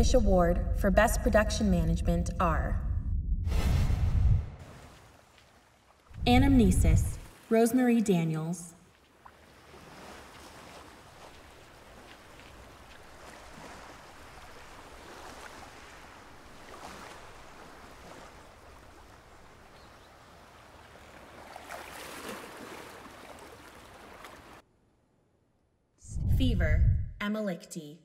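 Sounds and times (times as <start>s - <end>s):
small waves washing onto pebbles: 4.6s - 6.2s, 8.8s - 24.6s.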